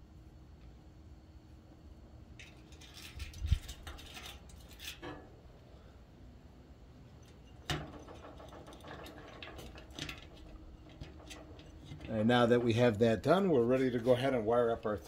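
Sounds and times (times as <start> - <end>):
wires scraping in metal box: 2.4 - 5.2, 7.4 - 12.9.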